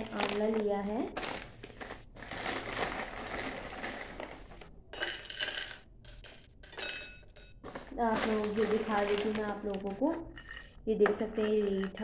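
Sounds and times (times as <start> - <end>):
foil pouch rustling: 0.0 - 4.6, 7.6 - 10.0.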